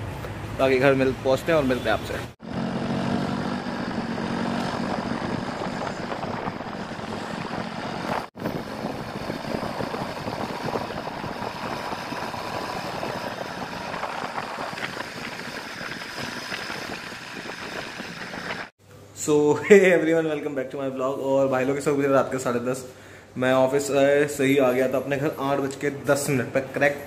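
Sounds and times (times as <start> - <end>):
road and traffic noise: 0.0 - 18.7
motorcycle engine running: 2.4 - 18.7.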